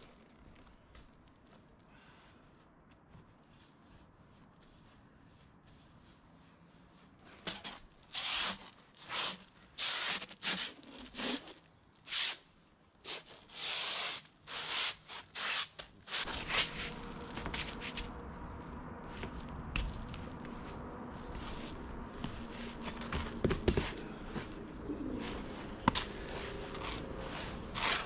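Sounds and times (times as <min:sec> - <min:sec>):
scraping strokes on roofing felt: 0:01.4 - 0:12.4, 0:13.0 - 0:28.0
low rumble and hiss: 0:16.2 - 0:28.0.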